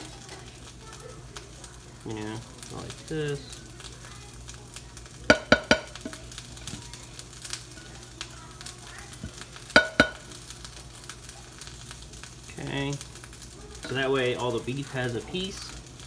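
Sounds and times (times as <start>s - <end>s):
pan sizzling faintly: 0.0s - 16.0s
utensil clinking on pot: 5.3s - 6.2s, 9.7s - 10.3s.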